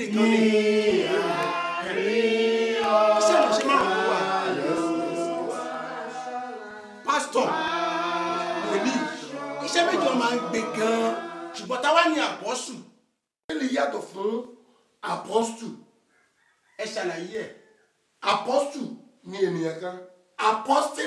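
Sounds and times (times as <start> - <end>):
man leading hymn singing: 0.0 - 7.7, 8.4 - 12.1
voices singing a hymn: 0.0 - 12.3.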